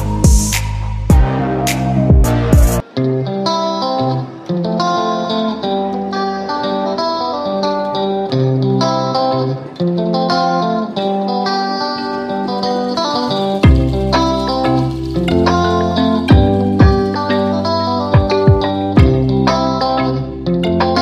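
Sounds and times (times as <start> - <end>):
heavy electronic beat: 0.0 - 2.8, 13.4 - 17.5, 18.1 - 19.5
plucked guitar melody: 0.0 - 21.0.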